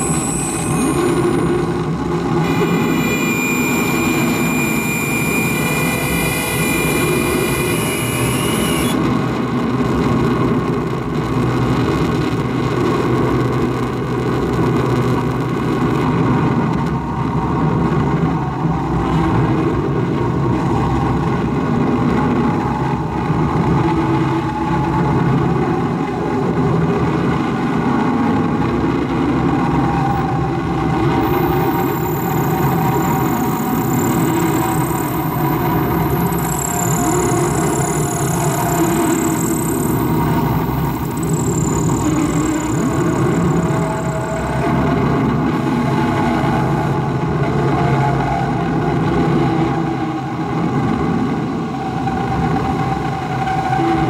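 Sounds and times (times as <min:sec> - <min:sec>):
high whistling tones: 0:00.0 - 0:09.1, 0:31.1 - 0:47.2
dense harsh noise mass: 0:00.0 - 0:54.0.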